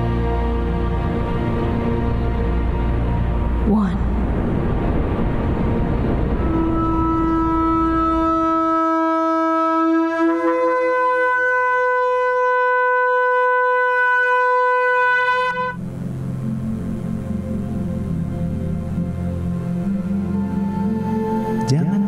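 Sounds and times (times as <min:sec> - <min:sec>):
soft music: 0:00.0 - 0:09.2, 0:14.4 - 0:22.0
low rumble: 0:00.8 - 0:08.9
horn blast: 0:05.0 - 0:16.0.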